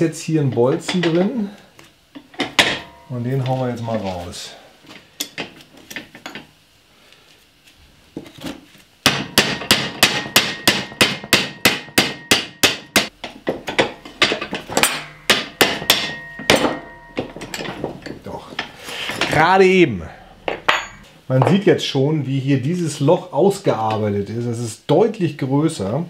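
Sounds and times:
hammer striking metal: 0:02.6 - 0:03.1, 0:09.1 - 0:19.4, 0:20.4 - 0:21.1.

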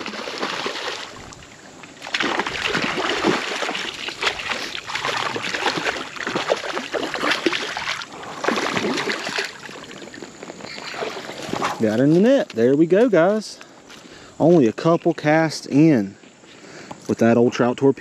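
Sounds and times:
fish thrashing and splashing: 0:00.0 - 0:11.6.

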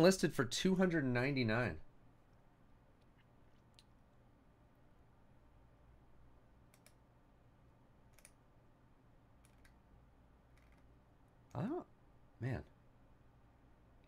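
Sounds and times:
mouse and keyboard clicks: 0:06.7 - 0:07.0, 0:08.1 - 0:08.4, 0:09.4 - 0:09.8, 0:10.5 - 0:10.9.

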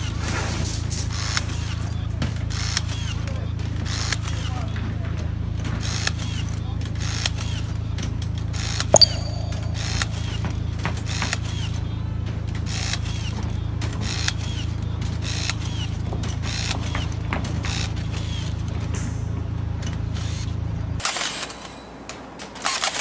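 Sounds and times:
sharp metallic clang: 0:09.0 - 0:10.3.

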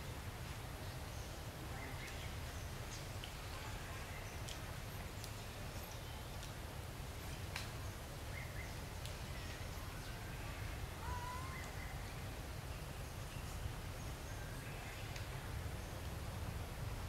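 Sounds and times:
faint high animal calls: 0:11.0 - 0:11.8.

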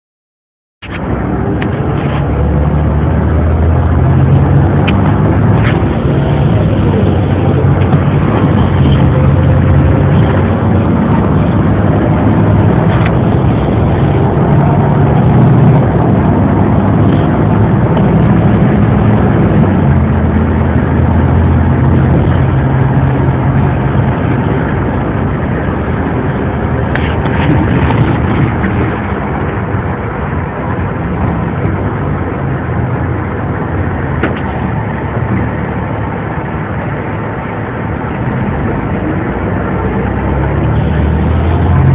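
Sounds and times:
bus engine drone: 0:00.8 - 0:41.9
road noise: 0:00.8 - 0:41.9.

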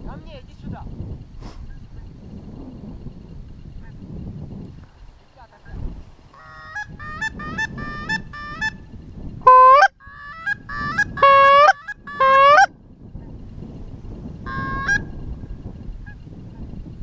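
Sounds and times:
goose honks: 0:09.5 - 0:12.7.

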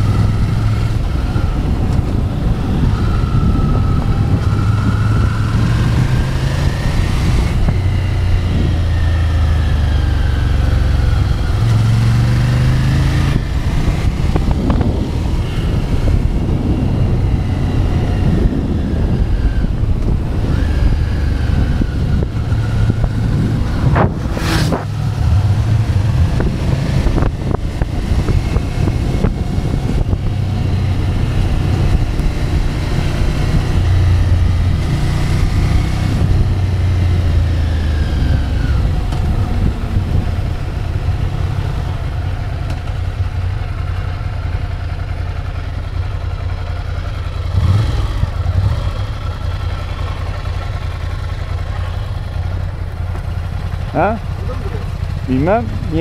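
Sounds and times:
wind rushing over microphone: 0:00.0 - 0:43.4
motorcycle engine running: 0:00.0 - 0:56.0.

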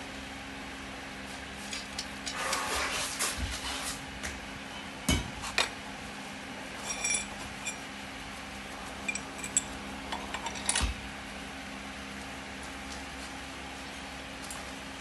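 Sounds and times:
nuts and washers clinking: 0:06.8 - 0:07.9, 0:09.0 - 0:11.0.

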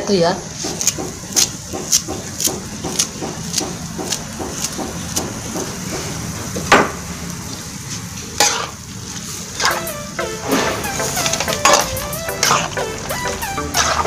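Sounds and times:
frying sizzle: 0:00.0 - 0:14.0
metal spatula scraping wok: 0:08.0 - 0:09.8, 0:10.4 - 0:14.0.

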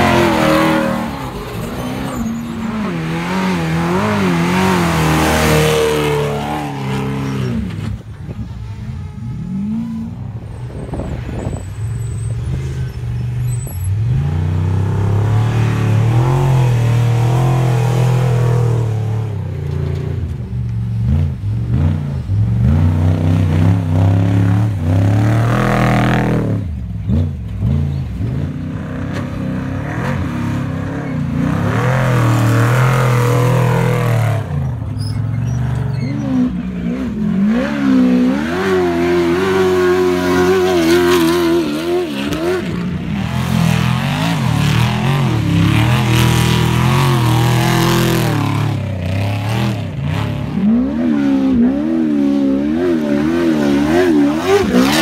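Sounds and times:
race vehicle engines revving past: 0:00.0 - 0:08.1, 0:21.0 - 0:55.0.

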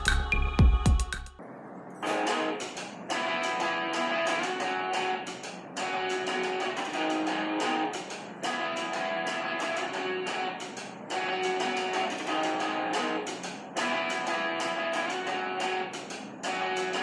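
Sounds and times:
strummed guitar instrumental music: 0:02.0 - 0:17.0.

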